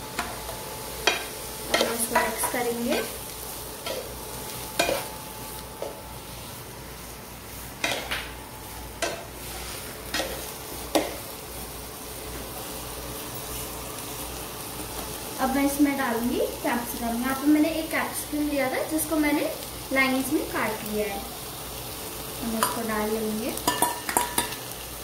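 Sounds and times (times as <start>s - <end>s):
onions sizzling in hot oil: 0.0s - 25.0s
spatula knocking and scraping a pan: 0.1s - 3.2s, 3.8s - 5.2s, 7.8s - 8.4s, 9.0s - 11.3s, 23.6s - 24.6s.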